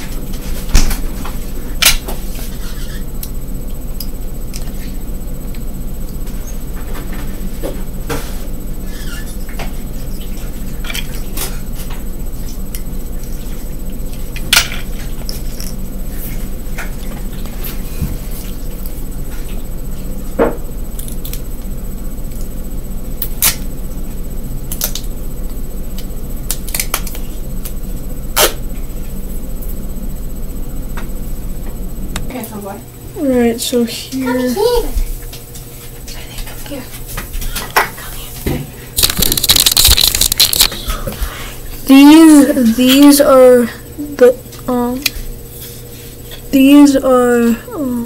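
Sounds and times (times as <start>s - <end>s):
steady low hum: 0.0s - 48.0s
plastic toys clicking: 39.0s - 40.8s.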